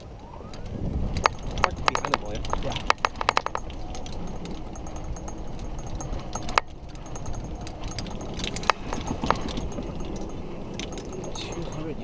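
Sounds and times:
golf cart rumbling: 0:00.0 - 0:12.0
rattling knock: 0:01.2 - 0:11.9.

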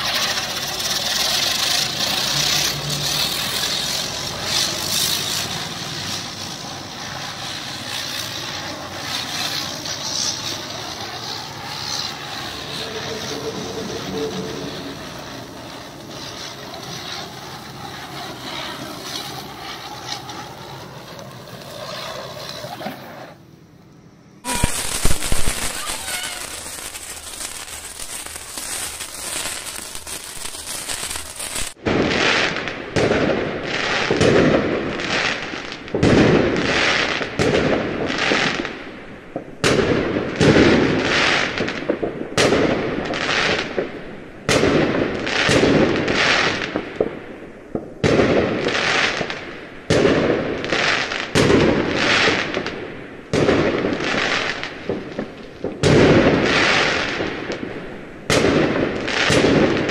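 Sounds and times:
fireworks bursting: 0:00.0 - 0:23.6, 0:24.4 - 0:59.9
steady hiss: 0:00.0 - 0:31.8.

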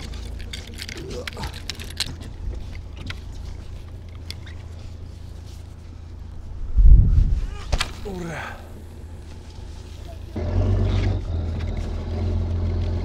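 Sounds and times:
heavy low rumble: 0:00.0 - 0:13.0
boat engine droning: 0:08.1 - 0:13.0.

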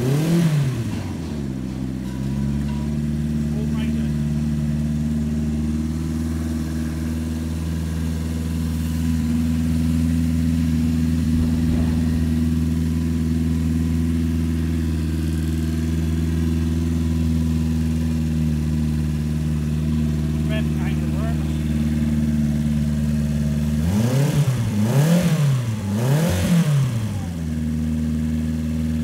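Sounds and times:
pump engine running: 0:00.8 - 0:23.9.

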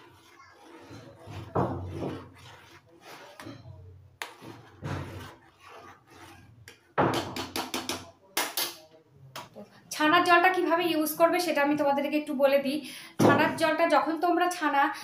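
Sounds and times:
metal spoon scraping metal pot: 0:00.0 - 0:07.0.

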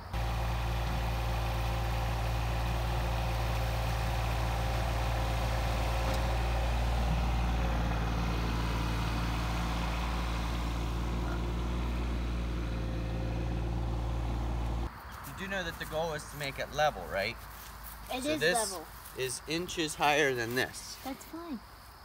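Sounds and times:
tractor diesel engine running: 0:00.0 - 0:14.9.

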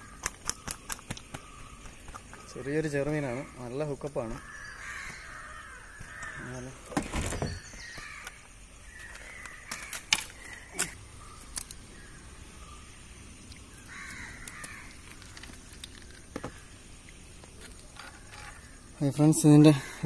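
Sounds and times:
crows cawing: 0:00.0 - 0:06.8, 0:07.7 - 0:12.7, 0:13.8 - 0:16.8, 0:19.7 - 0:20.0.

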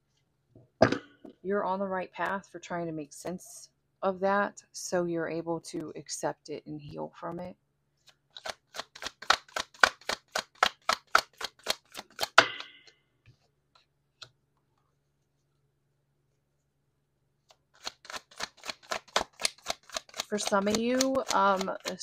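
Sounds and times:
cards being shuffled: 0:08.0 - 0:12.6, 0:17.4 - 0:22.0.

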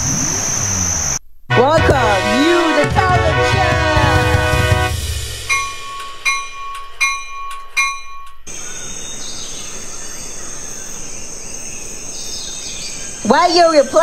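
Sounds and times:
bell-like chimes: 0:05.4 - 0:08.8
night insects chirring: 0:05.4 - 0:14.0.

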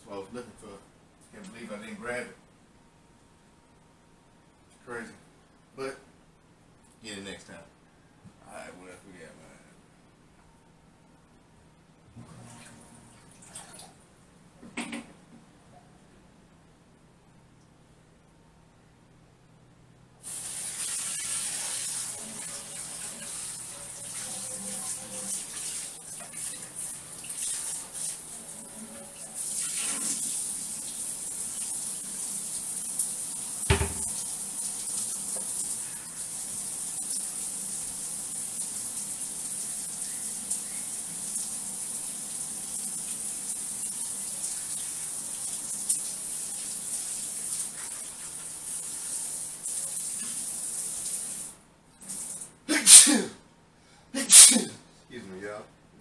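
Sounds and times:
tap running into sink: 0:33.6 - 0:34.2
sharp knock: 0:33.7 - 0:34.1.

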